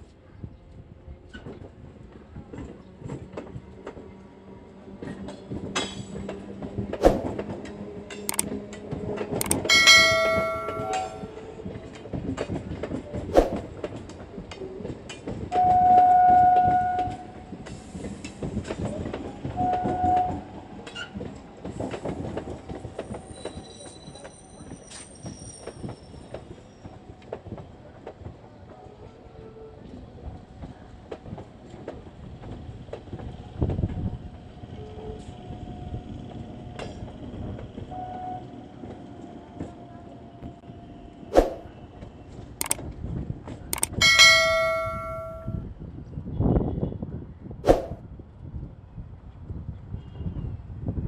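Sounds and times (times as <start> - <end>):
train rumble: 0.1 - 45.9
train wheels clicking over rail joints: 9.0 - 11.2, 43.8 - 45.4
train horn blasts: 19.6 - 20.5.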